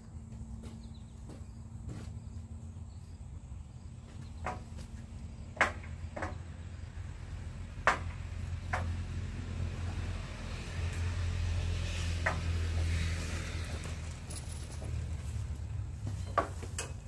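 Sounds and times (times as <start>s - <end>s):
sharp knocks: 7.8s - 9.0s.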